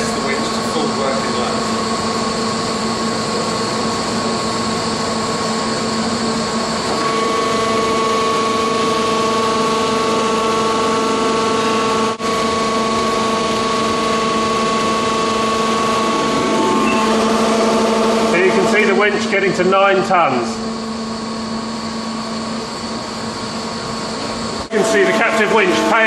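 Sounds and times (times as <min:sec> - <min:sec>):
winch mechanical whine: 0:04.2 - 0:20.2.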